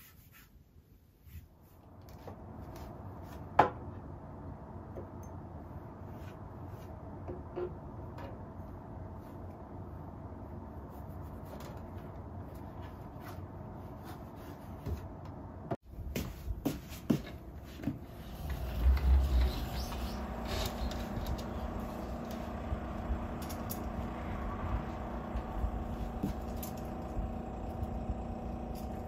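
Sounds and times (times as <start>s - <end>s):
steady low background hum: 1.2s - 29.0s
low rumble: 18.1s - 29.0s.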